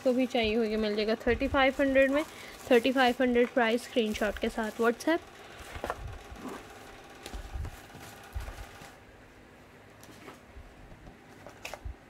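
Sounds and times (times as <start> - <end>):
rustling in cardboard carton: 0.1 - 9.0.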